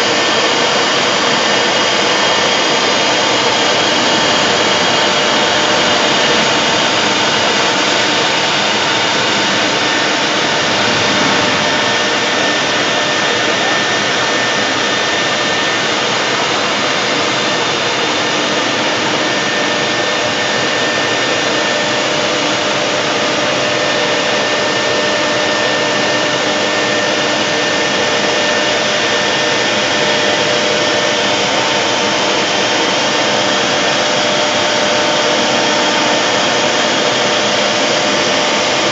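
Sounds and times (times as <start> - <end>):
spindle whine: 9.6 - 13.8.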